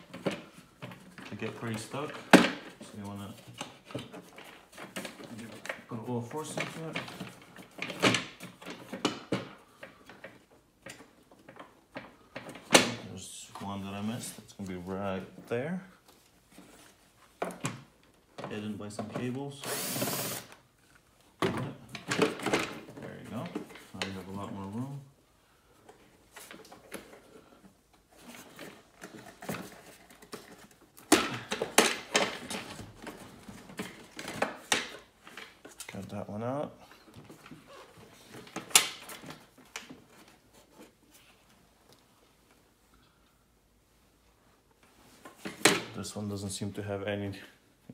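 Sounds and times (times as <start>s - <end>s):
plastic parts clicking and scraping: 25.8s - 36.2s.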